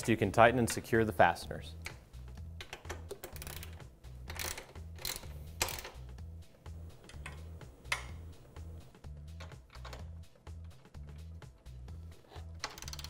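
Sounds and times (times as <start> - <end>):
background music with beat: 0.0 - 13.0
ratchet clicking: 2.6 - 6.1, 12.3 - 13.0.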